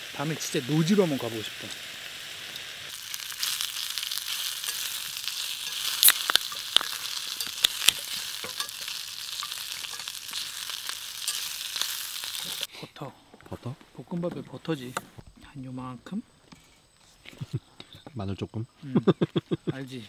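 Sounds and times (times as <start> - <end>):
food sizzling in a frying pan: 0.0 - 12.7
can pull tab cracking open: 6.0 - 7.0.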